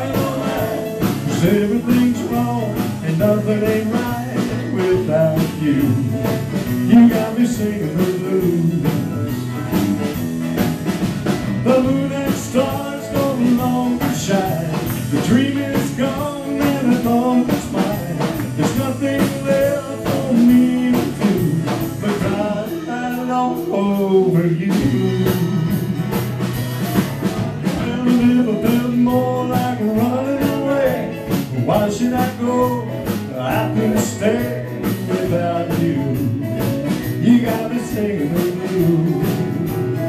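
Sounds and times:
acoustic guitars strumming: 0.0s - 40.0s
drum kit: 0.0s - 40.0s
electric guitar: 0.0s - 40.0s.

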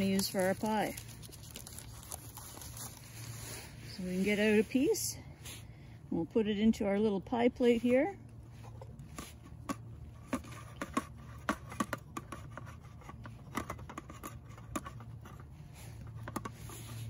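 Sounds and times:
wax paper crinkling: 0.0s - 4.9s
low steady hum: 0.0s - 17.0s.

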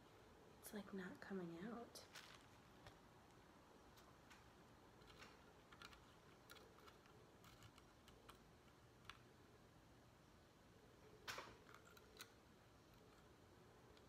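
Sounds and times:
stick clicking and scraping: 2.2s - 9.3s, 11.3s - 14.0s.

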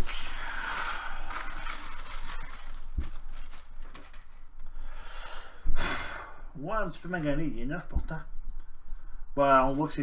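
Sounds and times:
plastic wrapping crinkling: 0.0s - 4.7s.

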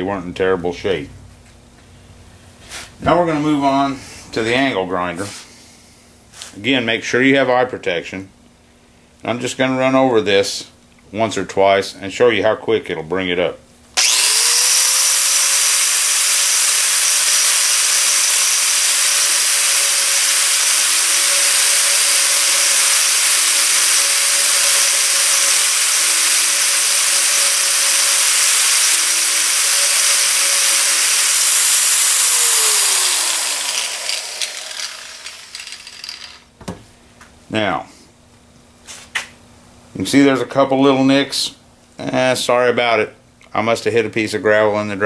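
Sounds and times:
angle grinder grinding metal: 14.0s - 36.5s.

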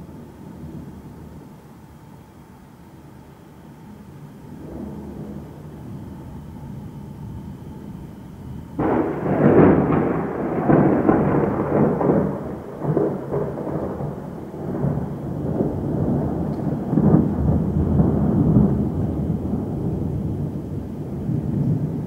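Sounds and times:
thunder clap and rumble: 4.4s - 6.9s, 8.7s - 22.0s.

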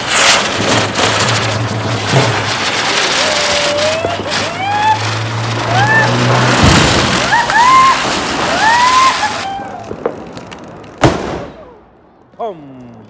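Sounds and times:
firecracker spraying sparks hiss: 0.0s - 9.8s
sharp firecracker bang: 0.0s - 10.3s, 11.0s - 11.8s.

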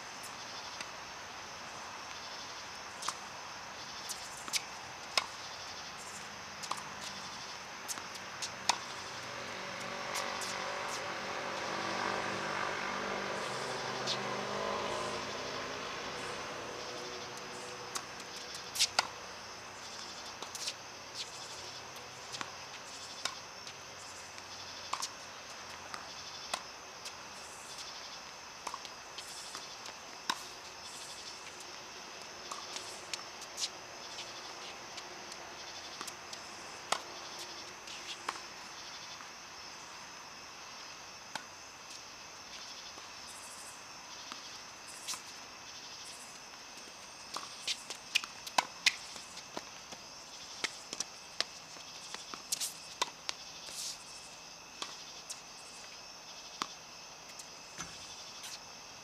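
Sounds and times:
high insect hum: 0.0s - 59.0s
tennis balls struck and bouncing: 4.0s - 39.4s, 46.4s - 54.0s, 54.8s - 58.6s.

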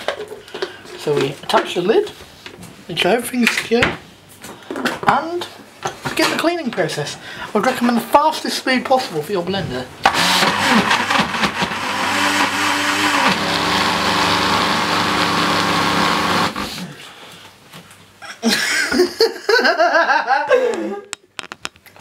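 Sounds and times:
blender whirring: 10.0s - 16.8s.

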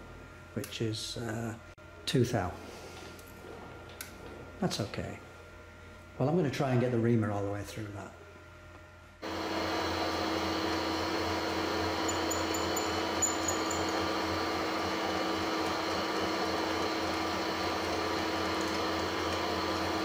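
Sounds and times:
lathe motor humming: 9.2s - 20.0s.

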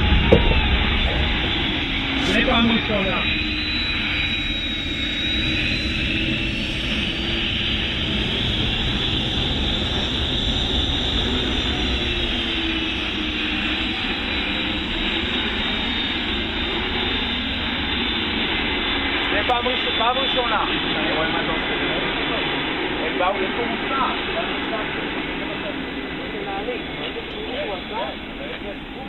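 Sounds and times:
jet engines whining: 0.0s - 29.0s.

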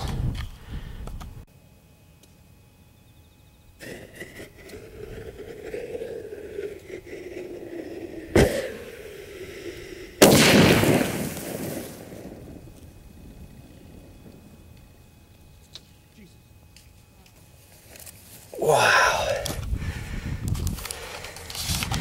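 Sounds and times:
burning fuse hissing: 3.8s - 16.3s
firework shell blast: 10.2s - 13.1s
sharp crack: 10.2s - 14.9s.

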